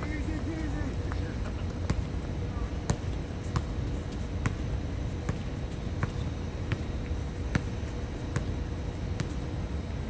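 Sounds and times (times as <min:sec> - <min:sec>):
basketball bouncing on hard court: 0:02.9 - 0:08.6, 0:09.2 - 0:09.5.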